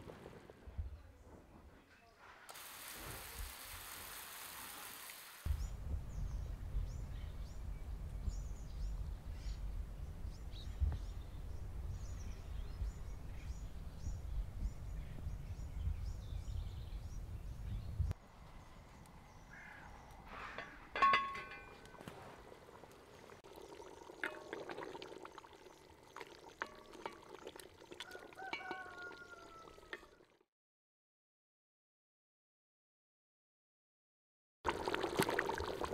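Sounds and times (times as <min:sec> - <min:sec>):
water splashing in a pot: 0:02.5 - 0:05.5, 0:20.9 - 0:30.4, 0:34.7 - 0:35.9
wind rumble on microphone: 0:05.5 - 0:18.2.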